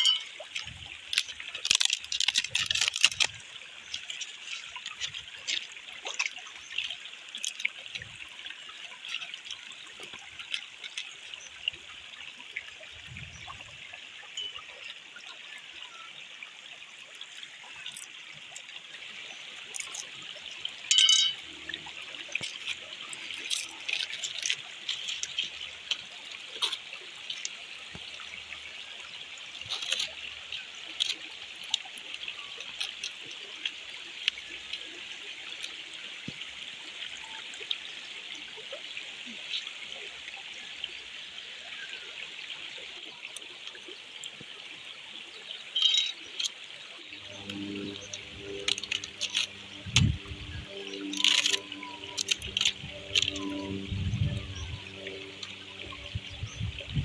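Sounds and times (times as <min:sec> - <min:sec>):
stream trickling over rock: 0:00.0 - 0:57.0
light clicks and scrapes: 0:29.6 - 0:31.8.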